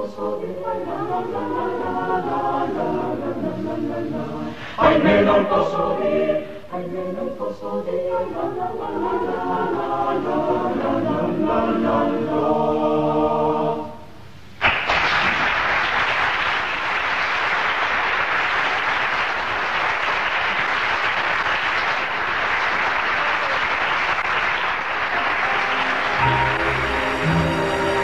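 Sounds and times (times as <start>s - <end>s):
choir singing: 0.0s - 14.1s, 25.1s - 28.0s
audience applauding: 14.6s - 28.0s
soft music: 25.1s - 28.0s.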